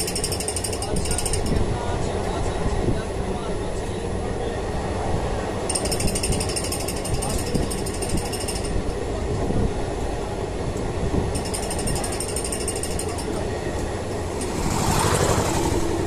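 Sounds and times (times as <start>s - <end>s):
fast metallic rattle: 0.0s - 1.6s, 5.7s - 8.8s, 11.4s - 13.4s
train wheels rumbling: 5.6s - 16.0s
rush of noise: 13.5s - 16.0s.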